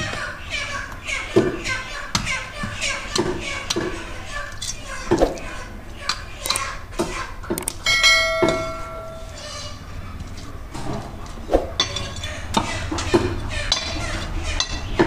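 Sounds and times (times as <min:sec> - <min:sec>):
short metallic ring: 0:07.9 - 0:09.4.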